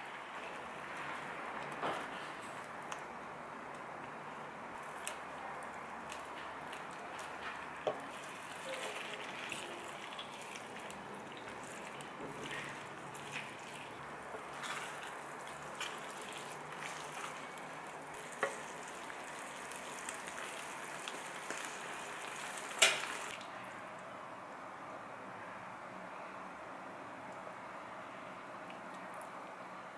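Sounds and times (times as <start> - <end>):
wet stirring: 4.7 - 23.4
sauce sizzling in a frying pan: 7.8 - 23.3.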